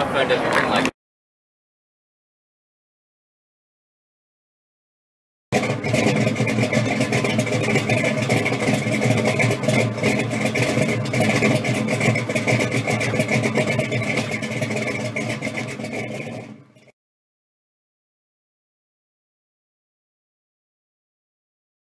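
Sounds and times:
car engine idling: 5.6 - 16.9.

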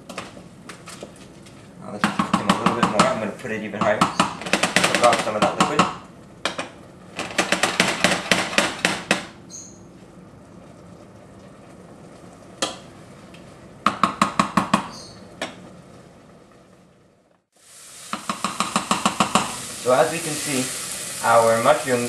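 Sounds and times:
soft sizzle: 5.0 - 7.2, 9.4 - 13.9, 14.9 - 22.0
spoon knocking against pot: 18.1 - 19.5.

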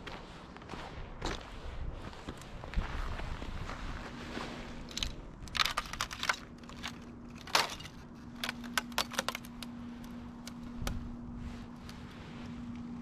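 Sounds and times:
faint low hum: 0.0 - 13.0
plastic bag and twigs crackling: 4.8 - 12.9.

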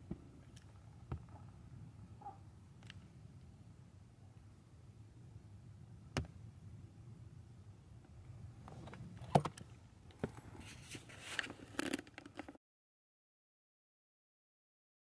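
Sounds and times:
low steady rumble: 0.0 - 11.0
rustling: 10.2 - 12.6.

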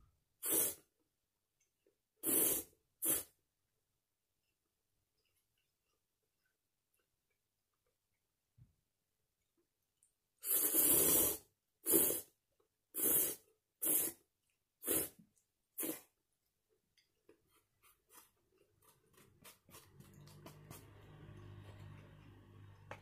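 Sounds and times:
noodles being slurped: 10.4 - 16.2, 17.0 - 23.0.

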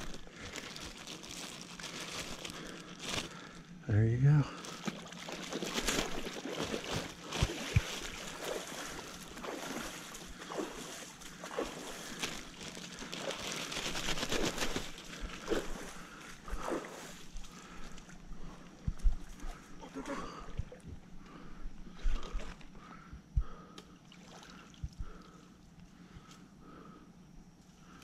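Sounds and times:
creek water sloshing and trickling: 4.6 - 18.3, 24.0 - 24.9.

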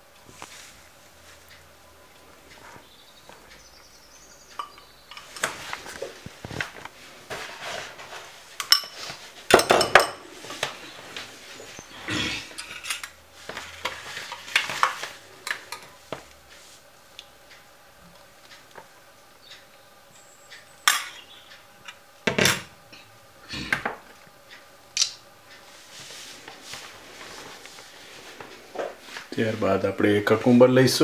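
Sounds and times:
spoon and bowls clinking on plate: 4.6 - 5.6, 8.6 - 10.2, 12.5 - 13.2.

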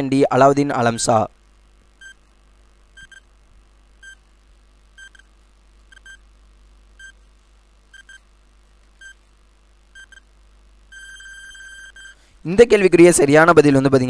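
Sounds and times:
short high-pitched electronic beeps: 10.9 - 12.2.

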